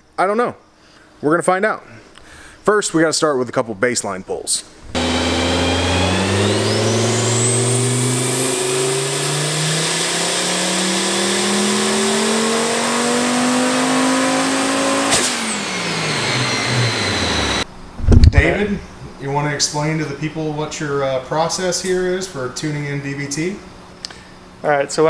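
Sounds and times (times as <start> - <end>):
engine revving at full throttle: 5.0 - 17.7
turbo whine: 5.0 - 18.3.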